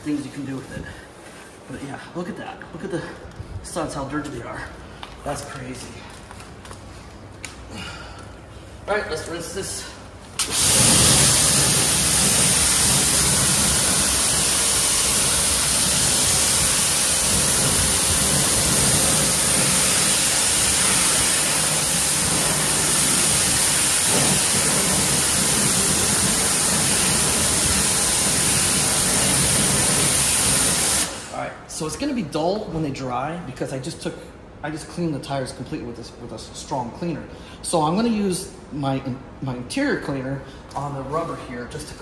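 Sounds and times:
water spray hissing on wheel: 0:10.4 - 0:31.3.

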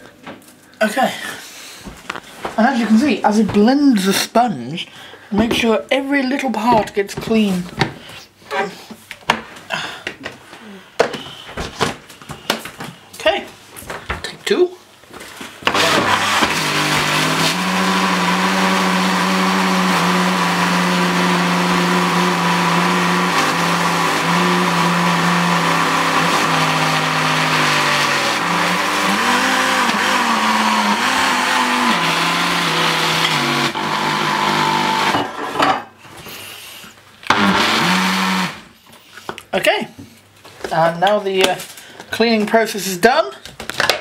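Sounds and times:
blender churning soapy water: 0:15.6 - 0:35.4, 0:37.3 - 0:38.7.

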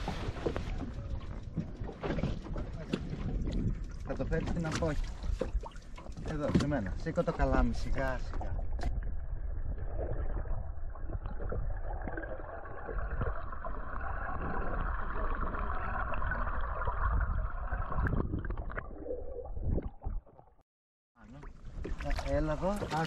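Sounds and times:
water splashing against boat: 0:00.0 - 0:18.8, 0:21.2 - 0:23.0
low rumble: 0:07.8 - 0:20.3.

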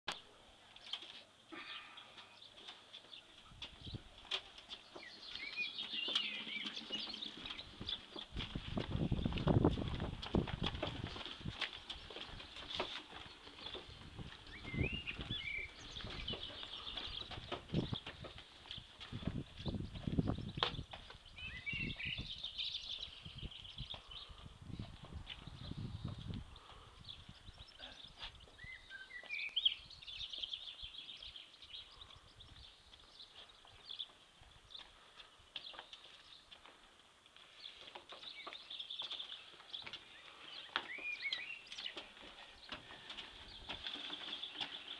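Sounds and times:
bird chirping: 0:00.1 - 0:09.4, 0:10.8 - 0:36.6, 0:37.5 - 0:44.9
wheelbarrow rattling over paving: 0:03.6 - 0:19.8, 0:40.6 - 0:44.9
wheelbarrow clunking over paving: 0:40.7 - 0:44.9.

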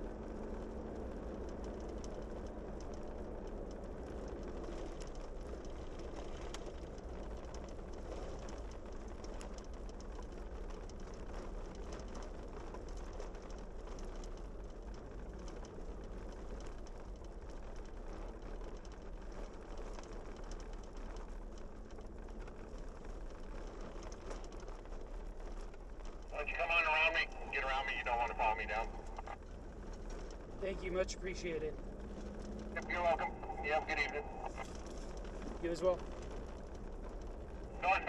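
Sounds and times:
engine and tyre road noise: 0:00.0 - 0:38.0
faint ticks: 0:00.1 - 0:38.0.

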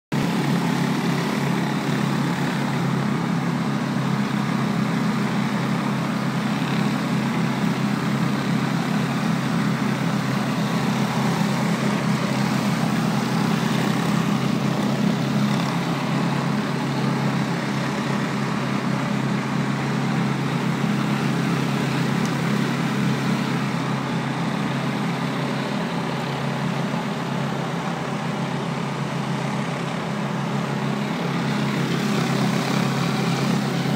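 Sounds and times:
pressure washer engine humming: 0:00.1 - 0:33.9.

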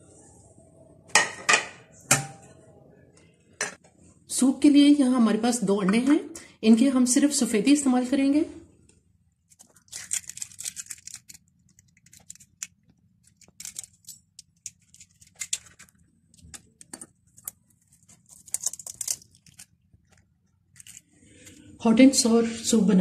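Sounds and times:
eggshells cracking: 0:09.6 - 0:21.1.

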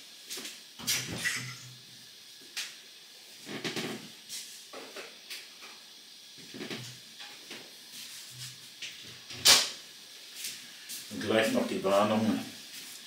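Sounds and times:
sharp hiss: 0:00.0 - 0:13.0
soft pops and crackles: 0:06.4 - 0:07.8.

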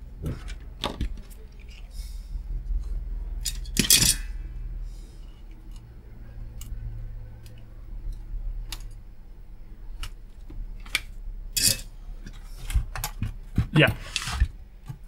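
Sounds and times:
low steady hum: 0:00.0 - 0:15.0
hand tools tapping metal: 0:03.4 - 0:04.3, 0:11.6 - 0:15.0
tools clattering: 0:03.4 - 0:04.5, 0:10.9 - 0:12.4.

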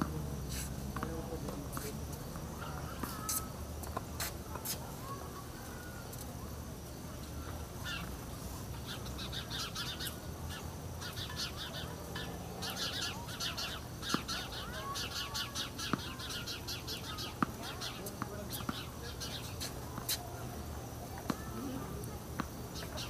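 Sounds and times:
birds chirping: 0:07.1 - 0:23.0.

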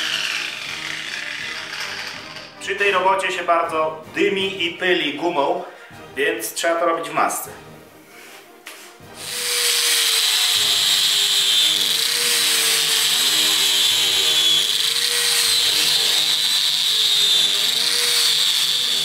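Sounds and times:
angle grinder grinding rubber: 0:00.0 - 0:02.6, 0:09.1 - 0:19.0.

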